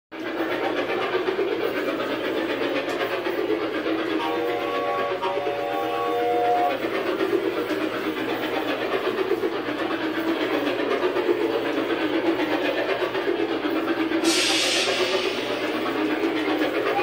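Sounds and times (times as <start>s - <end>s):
model train rattling on track: 0.2s - 17.0s
chord-like train whistle: 4.0s - 7.1s.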